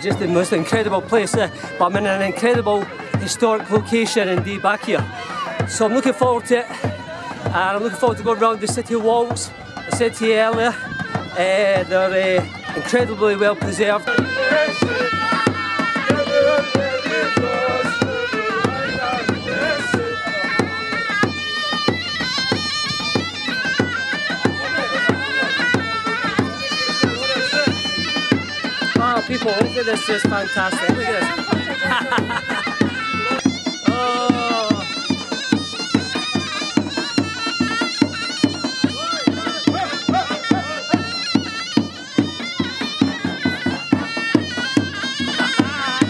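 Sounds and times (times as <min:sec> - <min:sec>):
shrill reed pipe melody: 0:00.0 - 0:46.0
bass drum beats: 0:09.5 - 0:20.8.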